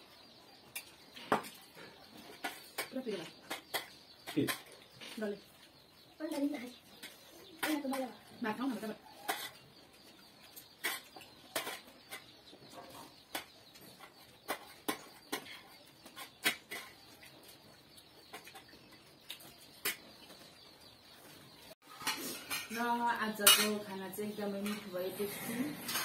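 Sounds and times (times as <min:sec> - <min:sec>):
light scraping on plates: 0:08.7 - 0:17.6, 0:21.8 - 0:26.0
spoon clinking on metal plates: 0:21.9 - 0:25.0.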